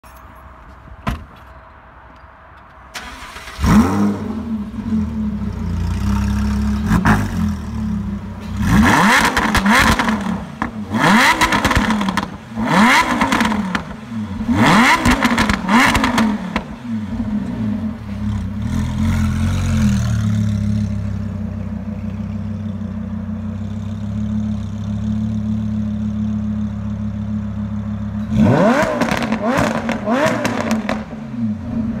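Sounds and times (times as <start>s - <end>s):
sports car engine revving: 3.3s - 21.3s, 28.0s - 32.0s
car engine idling: 13.4s - 28.5s.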